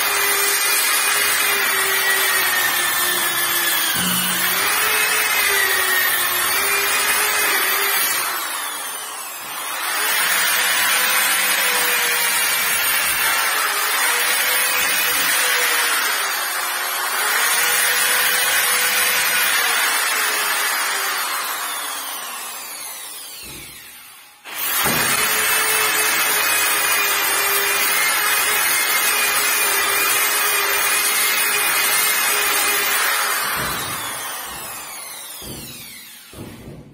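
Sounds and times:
electric sander whining: 0.0s - 12.7s.

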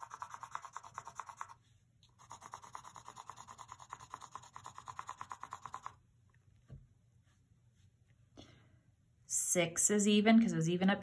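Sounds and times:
pencil scribbling on paper: 0.0s - 6.0s.

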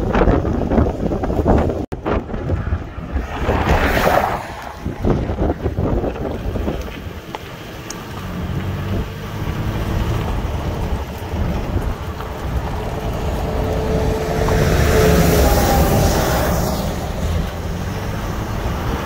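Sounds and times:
wind buffeting microphone: 0.0s - 19.0s
truck passing close by: 2.5s - 19.0s.

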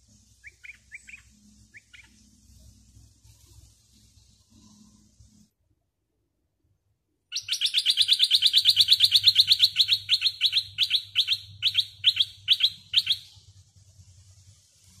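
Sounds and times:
bird chattering call: 0.4s - 2.2s, 7.3s - 13.3s.

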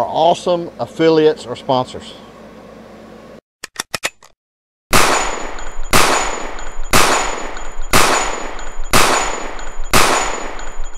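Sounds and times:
gunshots with ringing tail: 4.9s - 10.9s.

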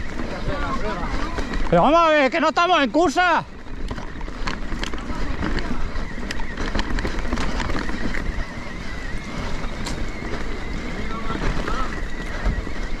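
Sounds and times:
bike tyre noise: 0.0s - 13.0s
thin steady whine: 0.0s - 13.0s
bike knocks and rattles: 3.0s - 13.0s
wind rush on microphone: 3.6s - 13.0s.

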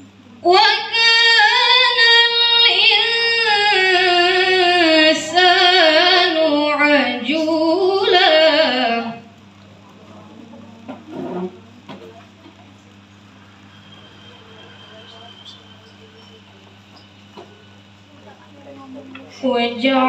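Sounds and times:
woman singing high: 0.4s - 9.3s.

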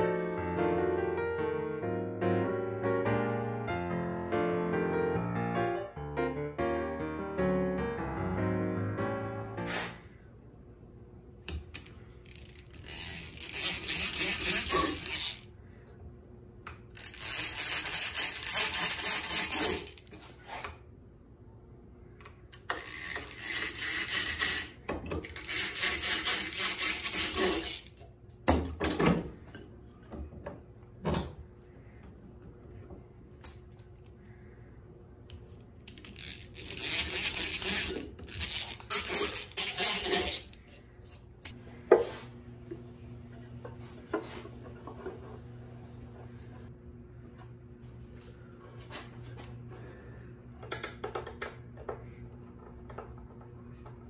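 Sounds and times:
hand drill gears whirring: 11.6s - 15.5s, 16.9s - 20.1s, 22.6s - 28.0s, 35.9s - 40.6s.

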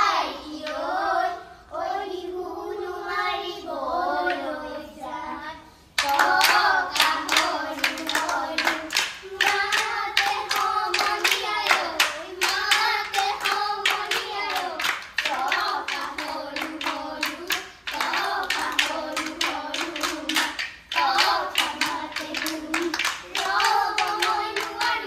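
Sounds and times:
child singing: 0.0s - 25.0s
rhythmic hand claps: 4.2s - 4.6s, 6.0s - 25.0s.

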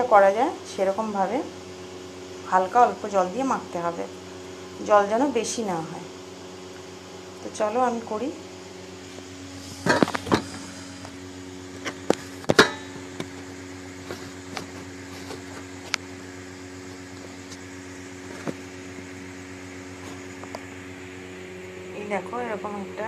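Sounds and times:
low electrical hum: 0.0s - 23.0s
kitchen items clattering: 9.7s - 10.6s.

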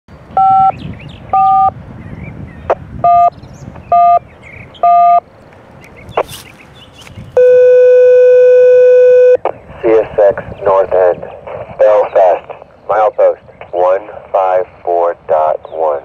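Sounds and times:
two-tone radio beeps: 0.4s - 1.8s, 2.7s - 4.2s, 4.8s - 5.2s, 7.4s - 16.0s.

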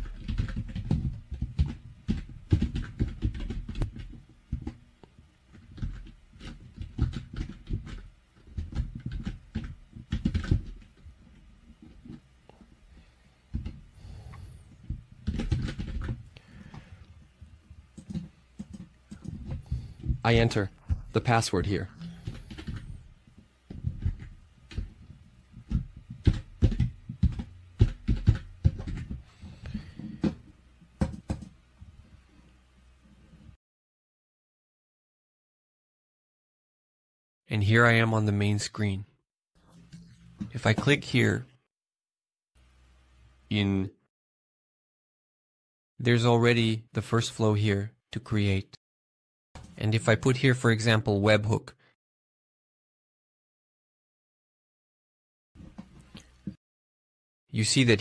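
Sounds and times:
computer keyboard typing: 0.0s - 4.8s, 5.5s - 11.0s, 15.2s - 16.2s, 18.0s - 20.7s, 22.1s - 22.9s, 25.6s - 29.2s, 31.0s - 31.5s.

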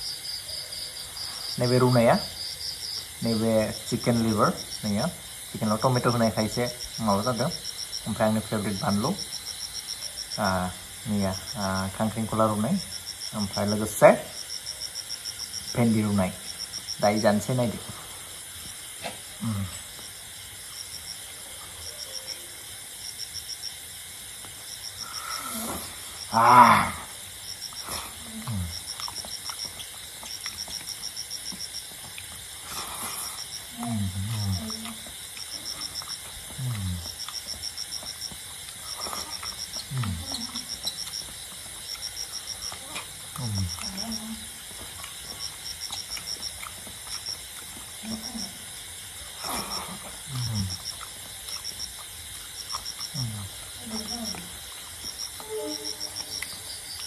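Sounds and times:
crickets chirping: 0.0s - 57.0s
person humming mmm: 19.4s - 19.9s, 25.0s - 27.1s, 27.9s - 28.9s, 33.7s - 35.1s, 36.5s - 37.1s, 39.0s - 40.7s, 42.7s - 44.4s, 49.4s - 50.8s, 53.1s - 54.6s
faint high chirping: 20.8s - 23.4s, 55.1s - 57.0s
wet chewing and lip-smacking: 27.3s - 55.4s, 56.2s - 57.0s
low murmurs: 36.5s - 37.1s.

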